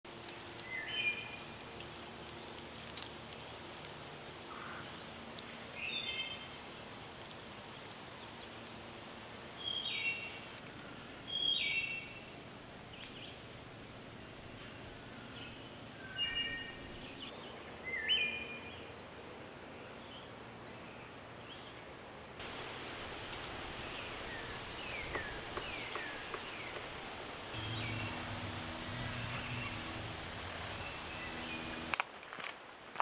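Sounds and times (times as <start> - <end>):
songbird singing: 0.1 - 3.8, 4.4 - 32.0
faint bird calls: 4.4 - 5.0, 22.5 - 31.9.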